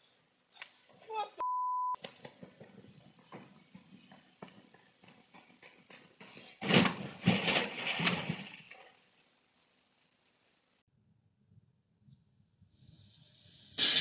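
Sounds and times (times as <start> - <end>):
car crunching and scraping: 2.0 - 10.3.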